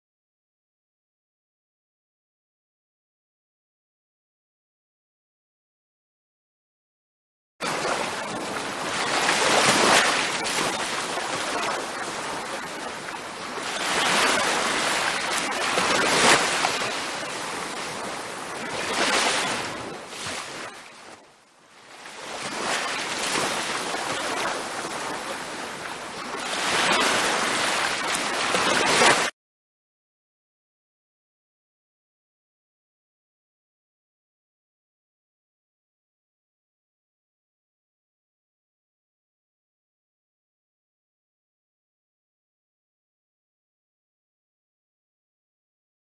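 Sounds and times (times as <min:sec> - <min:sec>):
ocean surf washing onto beach: 0:07.6 - 0:29.3.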